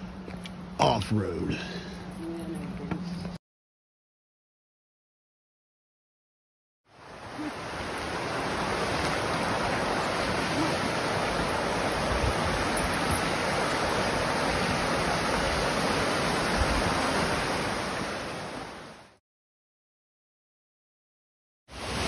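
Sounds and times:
creek rushing over rocks: 6.9 - 19.1.

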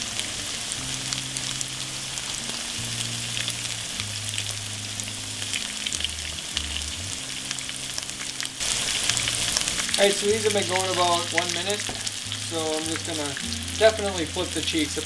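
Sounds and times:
fish fillets frying in oil: 0.0 - 15.0
oil crackling pops: 5.4 - 14.9.

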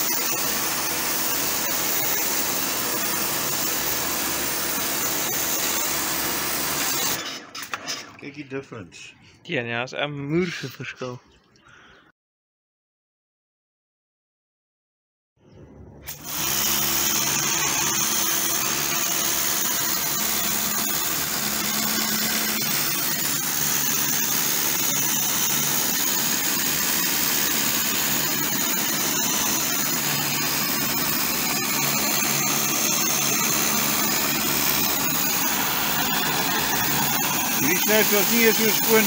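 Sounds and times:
pressure washer motor hum: 0.0 - 8.1, 16.1 - 39.0
water jet hissing on a wall: 16.1 - 39.0.

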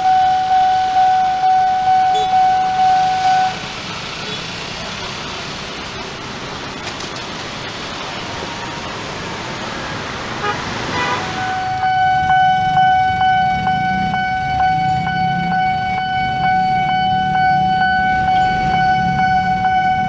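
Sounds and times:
railway crossing alarm dinging: 0.0 - 4.8, 10.4 - 20.0
road traffic: 0.0 - 20.0
car horn toots: 0.1 - 3.6, 10.4 - 12.4.

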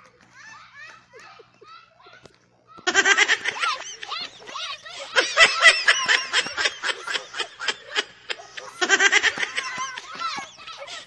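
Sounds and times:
children laughing and giggling: 0.0 - 11.0.

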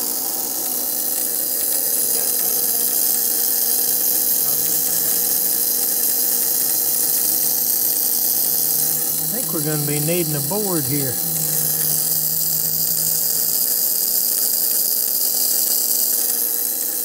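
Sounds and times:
faint electrical buzz: 2.0 - 14.9.

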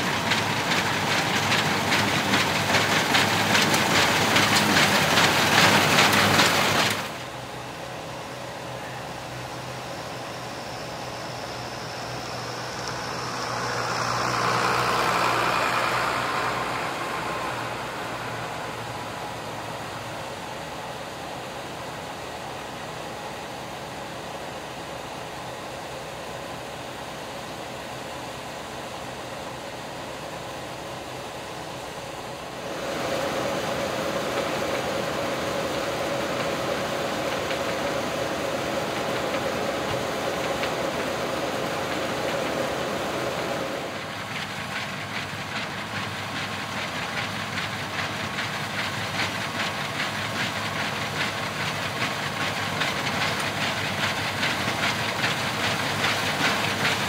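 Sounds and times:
rapid mechanical clatter: 0.0 - 7.3, 32.7 - 57.0
combine harvester running: 0.0 - 57.0.

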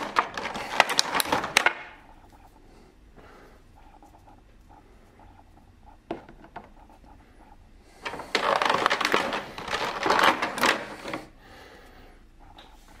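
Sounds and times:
plastic blister tray crinkling: 0.0 - 2.0, 8.0 - 11.3.

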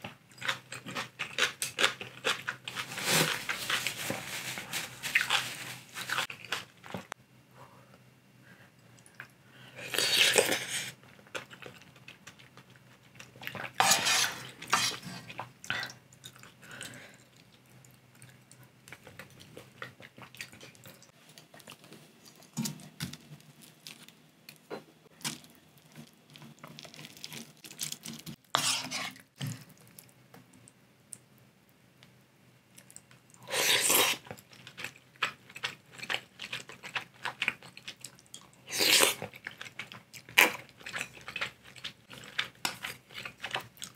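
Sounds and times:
quiet chewing: 8.7 - 31.4, 32.7 - 43.9
wooden spoon scraping pot: 13.8 - 15.3, 28.5 - 29.3
slurping noodles: 13.8 - 15.4, 33.4 - 34.2.

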